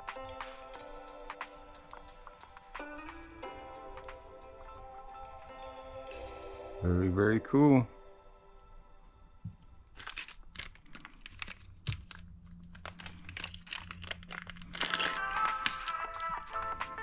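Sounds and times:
background music: 0.0s - 10.7s, 12.0s - 17.0s
plastic bag crinkling: 9.6s - 17.0s.

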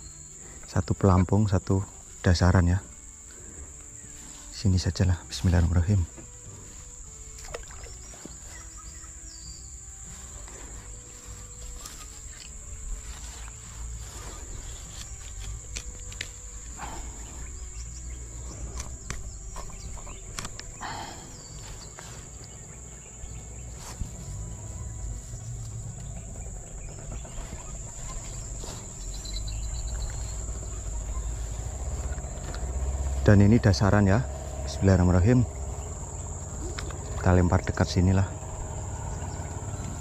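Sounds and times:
insects droning: 0.0s - 40.0s
low rumble: 8.8s - 40.0s.

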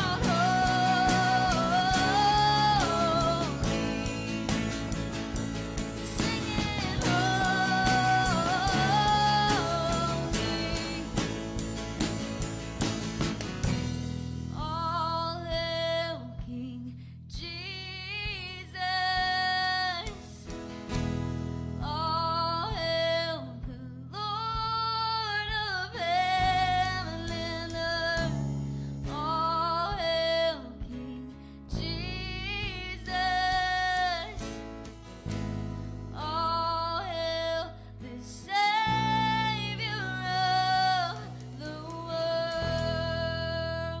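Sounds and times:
woman singing: 0.0s - 5.2s, 5.8s - 11.7s, 14.5s - 20.6s, 21.8s - 28.4s, 29.0s - 34.6s, 36.1s - 44.0s
church band playing: 0.0s - 14.3s.

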